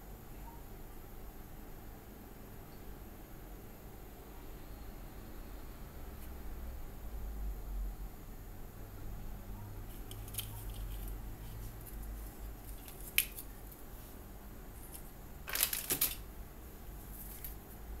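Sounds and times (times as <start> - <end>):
low steady hum: 0.0 - 18.0
plastic bag crinkling: 14.8 - 16.2.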